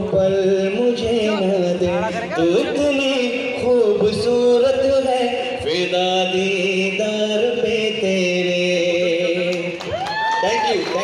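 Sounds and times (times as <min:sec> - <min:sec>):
man singing through a microphone: 0:00.0 - 0:11.0.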